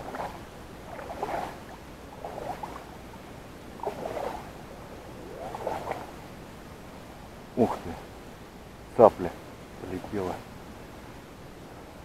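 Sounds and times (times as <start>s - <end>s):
footsteps sloshing through water: 0.0s - 6.2s.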